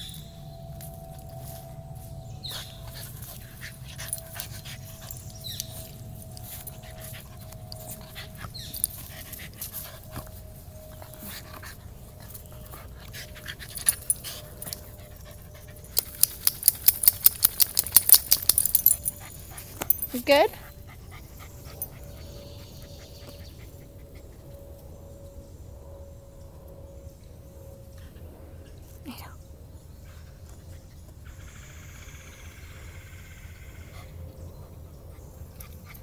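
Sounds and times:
harness jingling: 0:02.5 - 0:10.2, 0:12.2 - 0:22.2.

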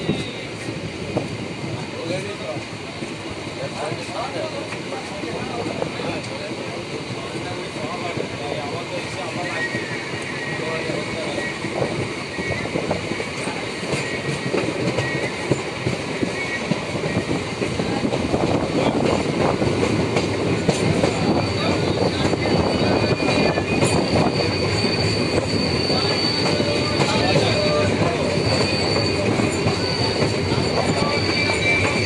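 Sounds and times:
high wheel squeal: 0:00.0 - 0:00.8, 0:07.2 - 0:19.0, 0:20.8 - 0:32.0
train wheels clattering on rails: 0:00.0 - 0:32.0.

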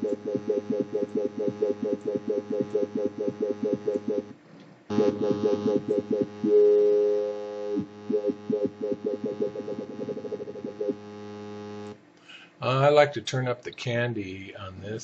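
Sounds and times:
wobble bass: 0:00.0 - 0:11.9
steady held synth note: 0:00.0 - 0:12.0.

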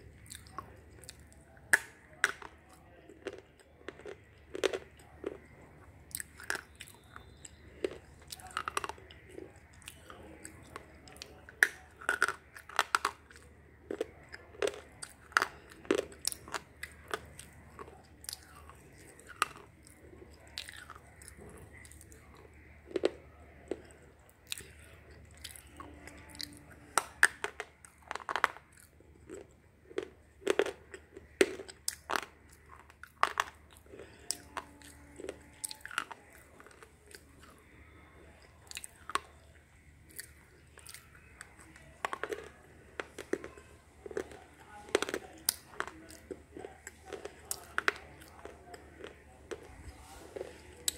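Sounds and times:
quiet grinding of teeth: 0:00.0 - 0:50.9
sharp crunches of chewing slate: 0:25.4 - 0:37.5.

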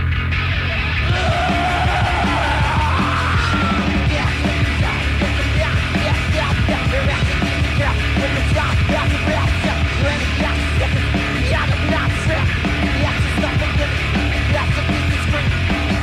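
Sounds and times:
death metal band playing: 0:00.0 - 0:16.0
person yelling vocals: 0:01.1 - 0:04.0.

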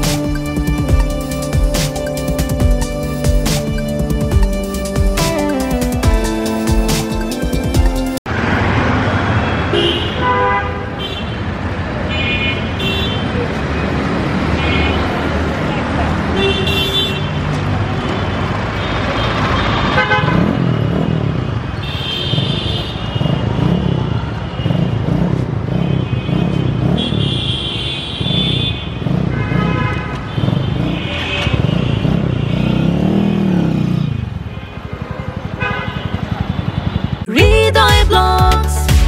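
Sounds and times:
vehicle horns honking: 0:09.4 - 0:11.5, 0:12.1 - 0:13.4, 0:14.5 - 0:15.3, 0:16.3 - 0:21.1, 0:21.8 - 0:37.3
motorcycle engine revving: 0:19.4 - 0:37.3.

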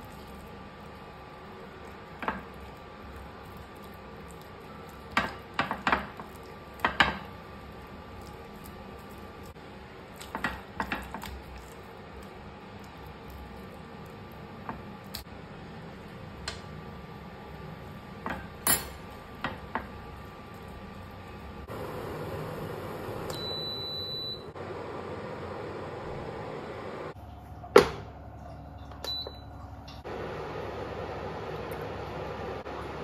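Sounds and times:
dishes and utensils clattering: 0:18.2 - 0:19.6.

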